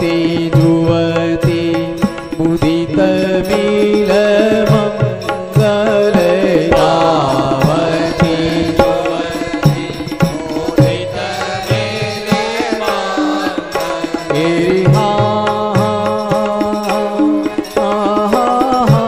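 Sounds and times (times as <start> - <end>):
hand drum strokes: 0.0 - 19.0
held drone: 6.3 - 14.9.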